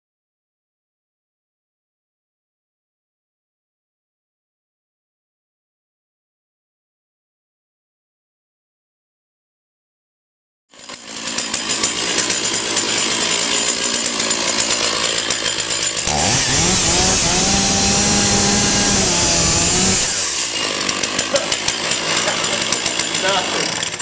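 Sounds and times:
chainsaw cutting through fabric: 0:10.7 - 0:24.0
chainsaw idling and revving: 0:10.7 - 0:24.0.

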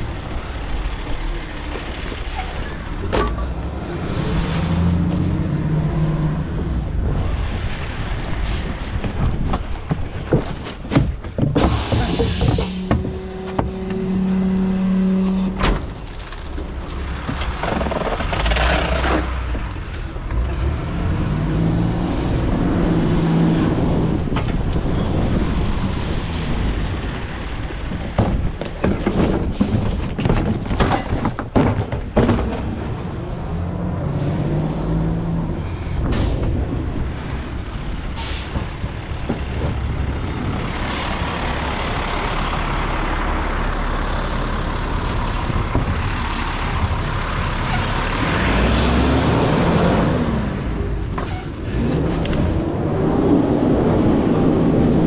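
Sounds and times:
garbage truck engine running: 0:09.0 - 0:19.8, 0:26.8 - 0:33.8
air brakes hissing: 0:11.6 - 0:12.9, 0:37.2 - 0:39.2, 0:40.9 - 0:41.2
metal clanks and bangs: 0:27.3 - 0:33.2.

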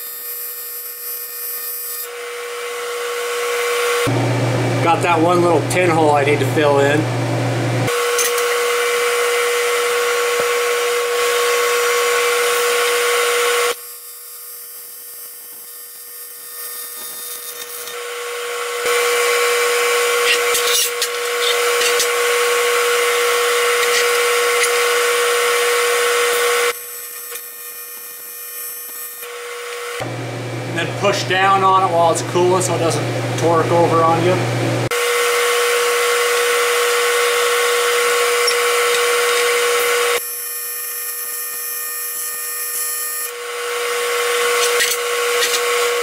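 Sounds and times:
welding arc buzzing: 0:00.0 - 0:46.0.

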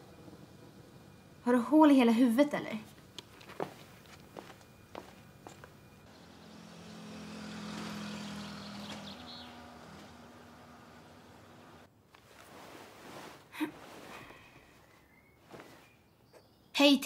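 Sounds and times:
motor vehicle passing: 0:05.8 - 0:11.9.

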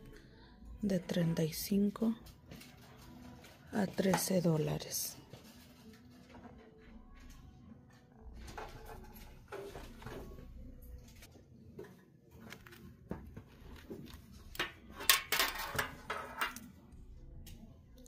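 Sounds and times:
shoes knocking and rustling: 0:12.3 - 0:14.9.

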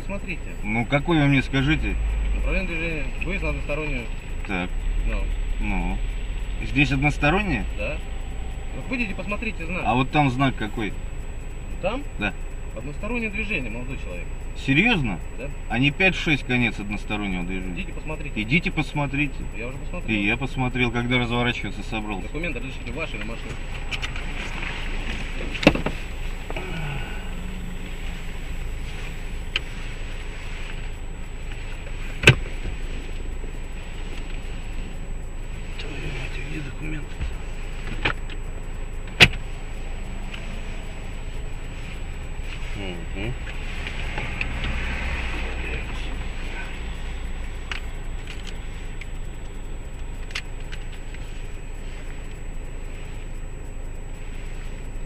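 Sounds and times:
car engine idling: 0:00.0 - 0:55.0
faint clicks: 0:16.1 - 0:55.0.

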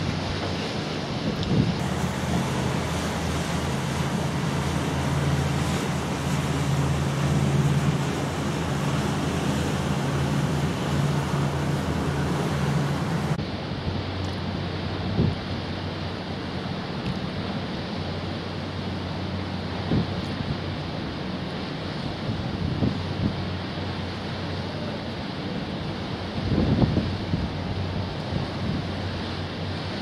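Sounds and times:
wind on microphone: 0:00.0 - 0:14.0, 0:14.8 - 0:15.9, 0:19.8 - 0:20.8, 0:22.0 - 0:23.6, 0:26.1 - 0:30.0
sea wash: 0:00.0 - 0:30.0
ship low drone: 0:00.0 - 0:30.0.

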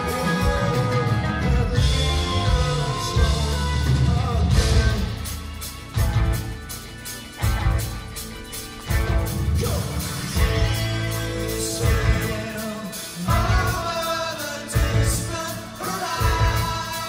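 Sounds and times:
sung vocals: 0:00.0 - 0:06.1, 0:09.3 - 0:17.0
heavy low accents: 0:00.0 - 0:12.5
live rock band playing: 0:00.0 - 0:17.0.

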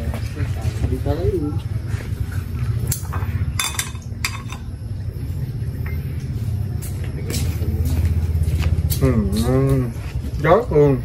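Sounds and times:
utensil clinking on plate: 0:03.6 - 0:04.7.

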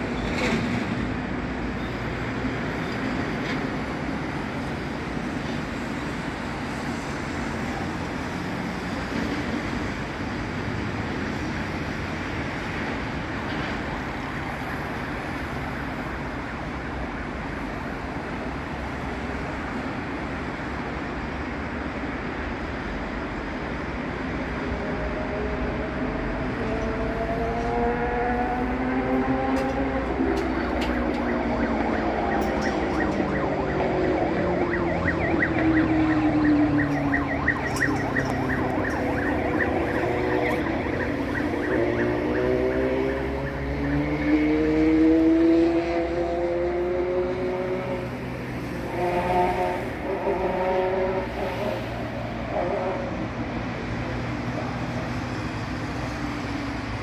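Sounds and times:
city traffic: 0:00.0 - 0:57.0
ambulance siren yelping: 0:26.7 - 0:45.0.

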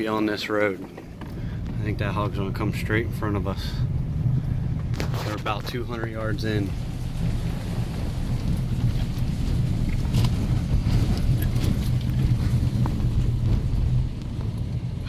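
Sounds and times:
vehicle engine and road rumble: 0:00.0 - 0:15.0.

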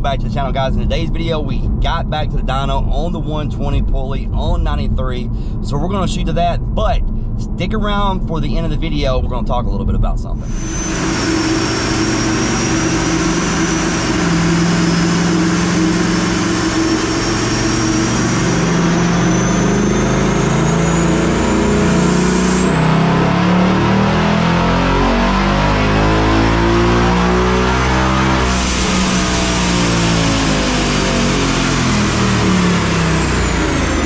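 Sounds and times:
supercharger whine: 0:00.0 - 0:34.0
car engine revving on a dyno: 0:10.4 - 0:34.0.

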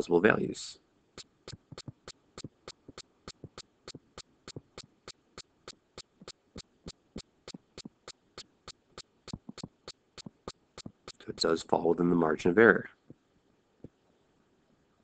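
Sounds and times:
faint regular clicking: 0:01.2 - 0:11.5.

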